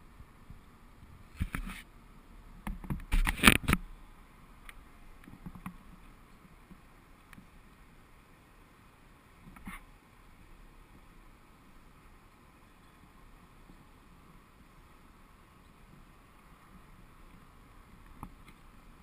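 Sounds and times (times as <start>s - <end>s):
faint ticks: 4.6s - 7.9s, 9.4s - 11.2s, 15.6s - 19.0s.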